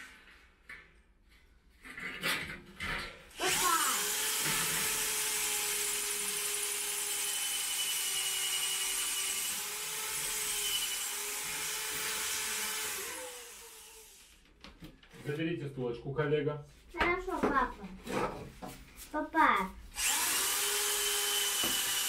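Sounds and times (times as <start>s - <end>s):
electric drill drilling into wall: 3.4s - 14.4s, 20.0s - 22.0s.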